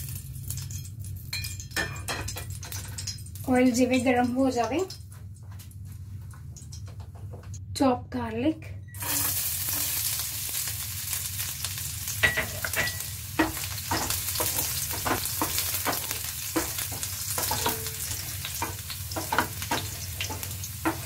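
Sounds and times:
garlic sizzling in oil: 0.0s - 4.7s, 9.0s - 21.0s
spatula tapping and scraping pan: 12.2s - 21.0s.

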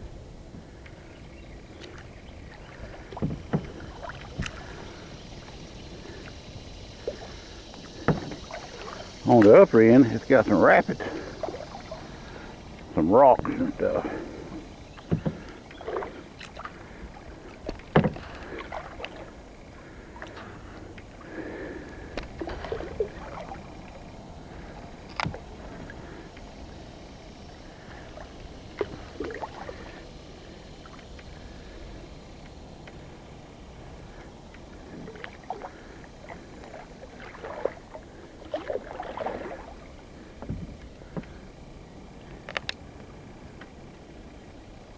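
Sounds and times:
paddle splashing in water: 0.4s - 42.4s
small sharp clicks: 42.4s - 42.8s.

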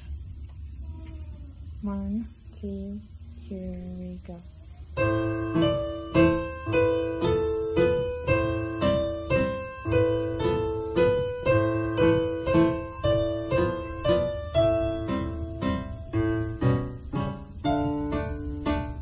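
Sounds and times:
digital piano duet: 5.0s - 19.0s.

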